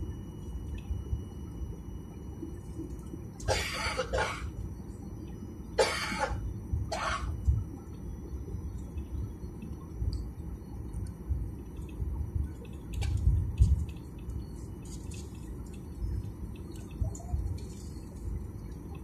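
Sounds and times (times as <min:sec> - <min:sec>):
person coughing: 0:03.5 - 0:04.5, 0:05.8 - 0:07.3.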